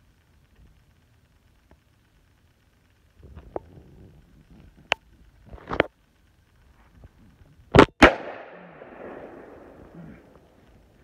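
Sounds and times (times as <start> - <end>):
rifle shots with ringing echo: 7.7 - 10.6.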